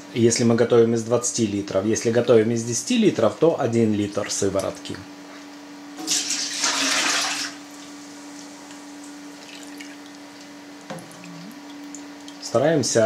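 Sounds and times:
steady low hum: 0:07.6 - 0:13.0.

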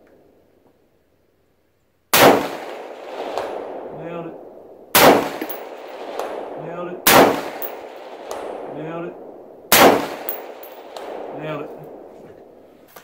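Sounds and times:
rifle shots: 0:02.1 - 0:12.6
bullet striking steel target: 0:05.0 - 0:06.4, 0:07.1 - 0:08.6, 0:09.7 - 0:11.4.

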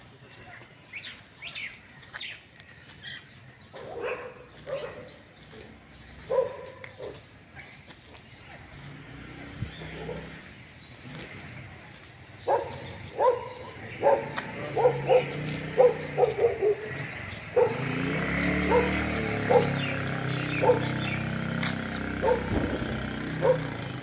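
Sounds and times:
dog barking: 0:03.7 - 0:07.8, 0:09.9 - 0:10.4, 0:12.4 - 0:18.0, 0:18.6 - 0:21.2, 0:22.2 - 0:22.6, 0:23.4 - 0:23.8.

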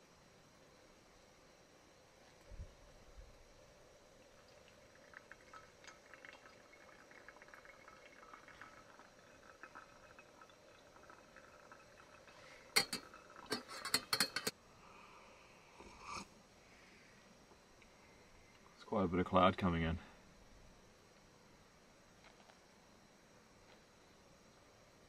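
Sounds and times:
camp cookware clinking: 0:07.4 - 0:14.6.

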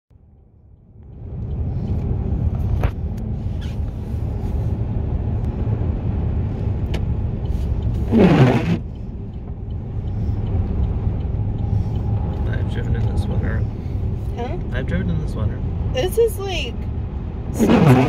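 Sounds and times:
car tyres and engine rumble: 0:00.1 - 0:18.0.

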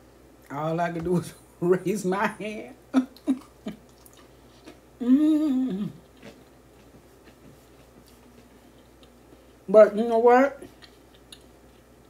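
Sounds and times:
woman humming while chewing: 0:05.0 - 0:06.3.

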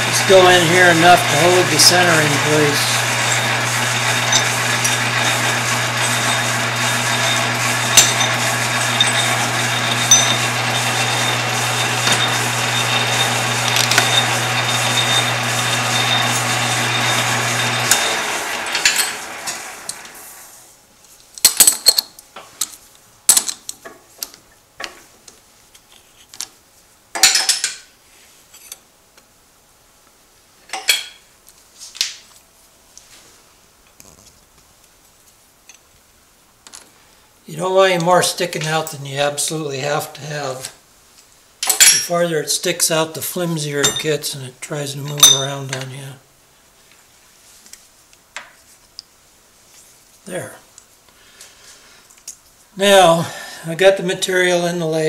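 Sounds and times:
metal lathe humming: 0:00.0 - 0:20.5.

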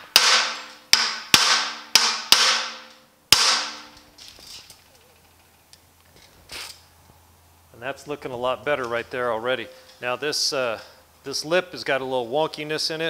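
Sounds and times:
hammer striking metal block: 0:00.0 - 0:04.0.

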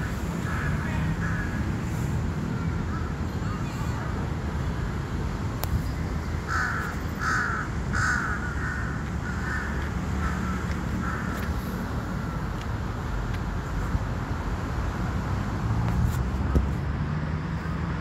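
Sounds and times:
crow cawing: 0:06.5 - 0:11.5.

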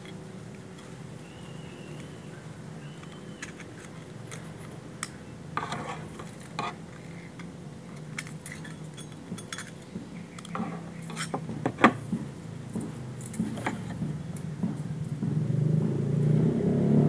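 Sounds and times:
small metal parts clinking: 0:03.0 - 0:11.4.

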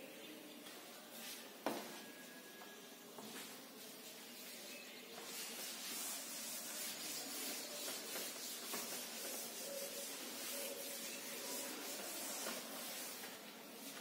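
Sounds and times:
duster rubbing on chalkboard: 0:05.2 - 0:14.0.

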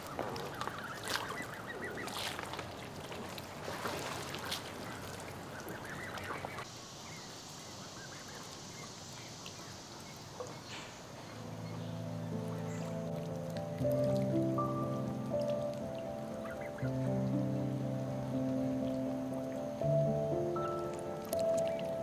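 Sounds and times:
geese honking: 0:00.0 - 0:02.7, 0:03.7 - 0:06.7, 0:10.4 - 0:17.8
steady high hiss: 0:04.9 - 0:22.0.

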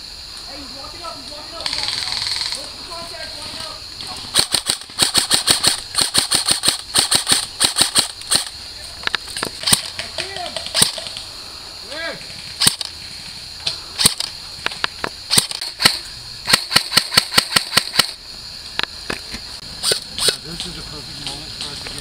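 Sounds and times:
airsoft rifle shots: 0:04.2 - 0:08.5, 0:09.6 - 0:11.1, 0:12.6 - 0:13.0, 0:14.0 - 0:14.3, 0:15.3 - 0:18.2.

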